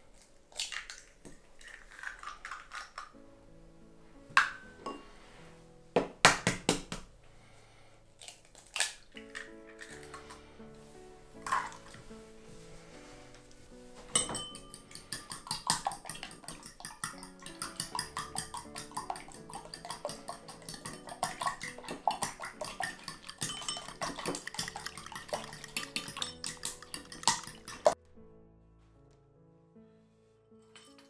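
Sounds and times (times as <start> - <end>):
soft background music: 2.0 - 31.0
fork clinking against bowl: 14.2 - 28.0.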